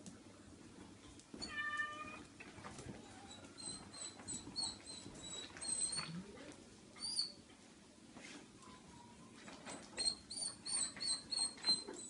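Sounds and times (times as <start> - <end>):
cat meowing: 1.4 - 2.2
short high squeaks: 3.3 - 6.2, 9.7 - 12.0.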